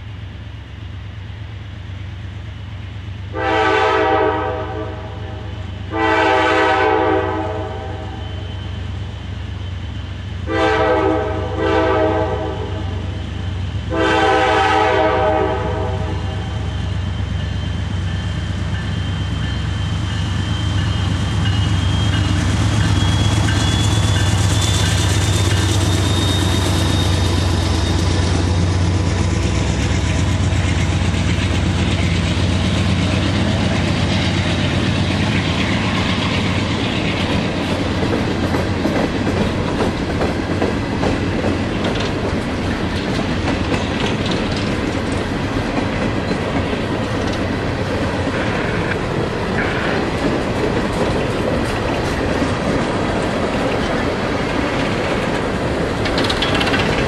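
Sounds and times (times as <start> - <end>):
locomotive air horn blasts: 3.3 - 8.2, 10.4 - 13.1, 13.9 - 16.7
locomotive engine rumble: 8.4 - 57.0
freight cars rolling: 16.8 - 57.0.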